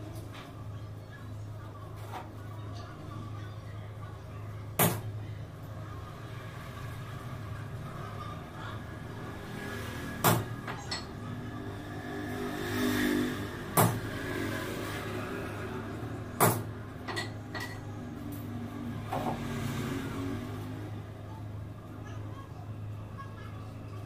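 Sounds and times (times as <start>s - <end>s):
sharp knocks on metal: 10.2s - 10.6s, 13.7s - 14.1s, 16.4s - 16.7s.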